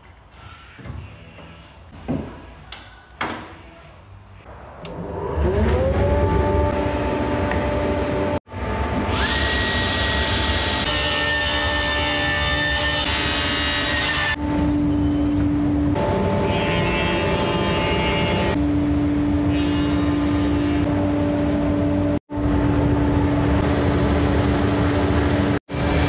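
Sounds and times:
workshop motor hum: 4.8 - 26.0.

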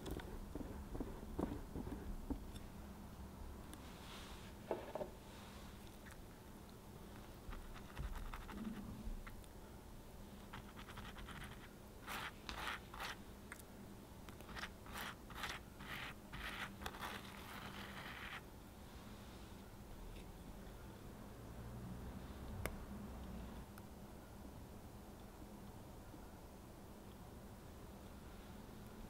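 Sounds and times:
pastry brush brushing sponge: 10.5 - 13.2, 14.5 - 18.4.

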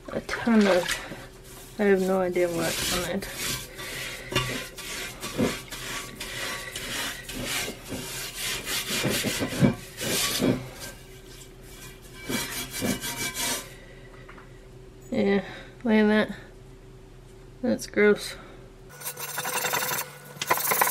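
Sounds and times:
steel scrubber scouring grill pan: 0.5 - 13.8, 18.9 - 20.9.

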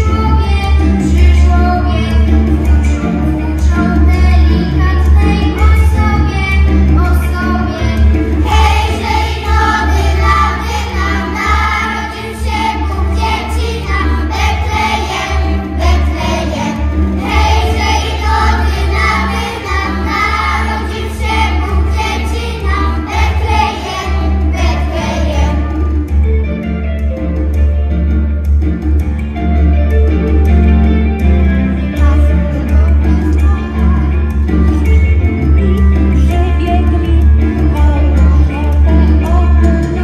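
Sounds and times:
low instrumental accompaniment: 0.0 - 40.0
children's choir singing a carol: 7.2 - 25.8.

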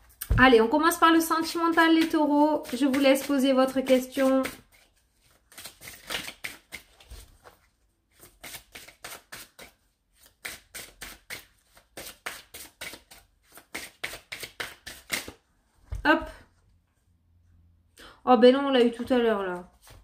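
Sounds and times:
cards being shuffled: 1.4 - 15.4, 19.6 - 20.0.

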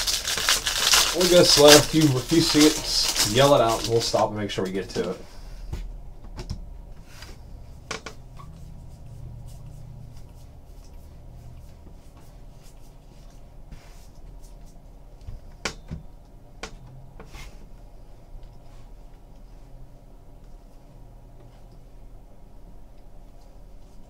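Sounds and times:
trading cards rustling: 0.0 - 5.2
low steady hum: 0.0 - 24.0.

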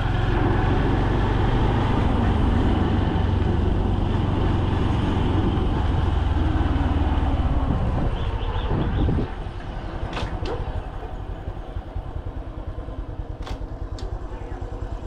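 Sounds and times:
small motorcycle engine running: 10.5 - 15.0.

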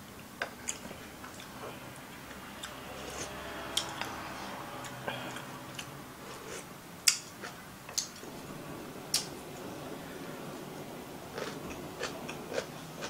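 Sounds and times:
chewing: 11.3 - 13.0.

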